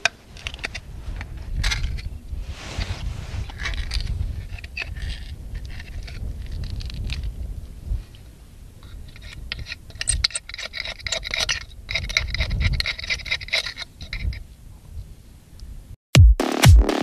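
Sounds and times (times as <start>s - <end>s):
knife scraping oyster shell: 3.4s - 7.2s, 8.9s - 14.4s.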